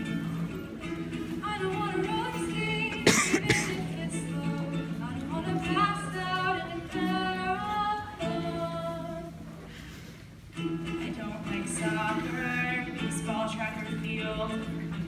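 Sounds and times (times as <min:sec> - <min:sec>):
strummed ukulele: 0:00.0 - 0:09.6, 0:10.4 - 0:15.0
women singing: 0:01.3 - 0:09.4, 0:10.6 - 0:15.0.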